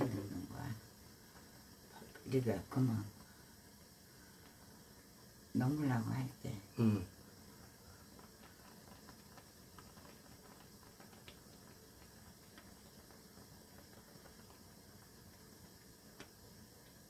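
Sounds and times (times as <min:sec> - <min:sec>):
water boiling in a pan: 0:00.0 - 0:17.0.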